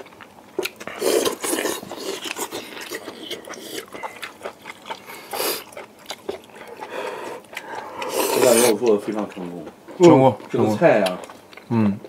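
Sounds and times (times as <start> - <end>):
wet chewing and lip-smacking: 0.0 - 12.0
breathy slurps: 0.8 - 4.3, 4.9 - 5.8, 6.4 - 9.0.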